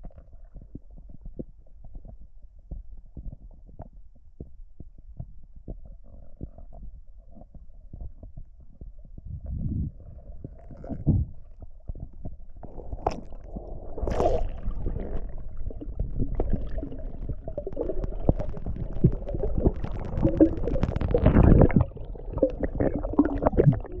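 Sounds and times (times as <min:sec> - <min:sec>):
small underwater clicks and knocks: 0:00.0 - 0:24.0
underwater water rumbling: 0:05.0 - 0:24.0.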